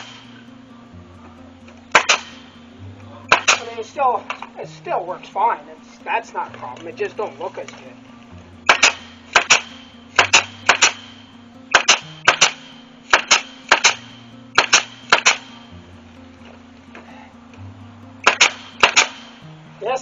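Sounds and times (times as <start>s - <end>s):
nail gun firing: 1.9s - 2.4s, 3.3s - 3.7s, 8.6s - 15.5s, 18.2s - 19.3s.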